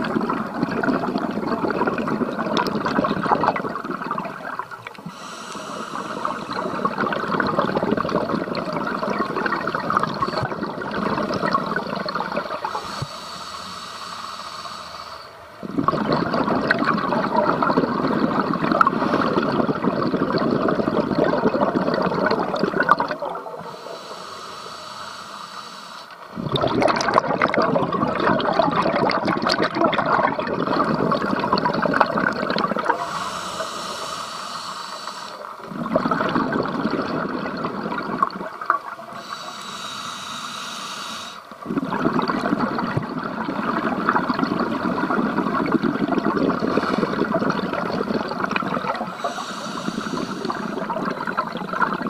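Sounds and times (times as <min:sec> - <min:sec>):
exhaled bubbles rushing underwater: 0:00.0 - 0:13.2, 0:14.7 - 0:24.0, 0:26.2 - 0:40.0, 0:41.2 - 0:52.0
regulator inhale hiss: 0:05.0 - 0:07.0, 0:12.6 - 0:15.4, 0:23.6 - 0:26.3, 0:32.9 - 0:35.6, 0:39.0 - 0:41.6, 0:46.6 - 0:47.3, 0:49.0 - 0:50.9.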